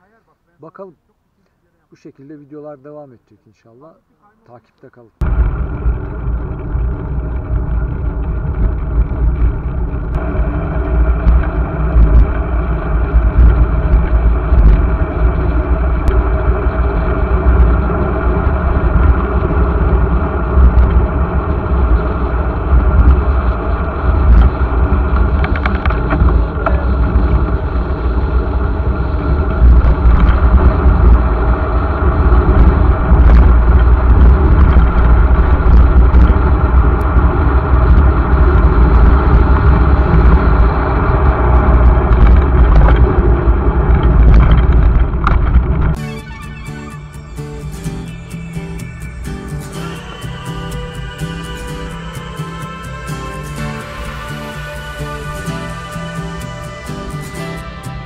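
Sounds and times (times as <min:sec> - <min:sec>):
wind buffeting microphone: 0:05.2 - 0:46.0.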